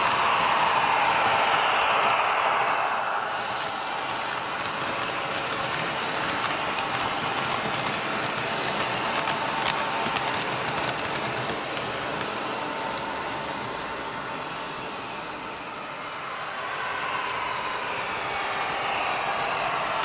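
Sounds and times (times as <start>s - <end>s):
wheels clicking over rail joints: 4.6s - 14.4s.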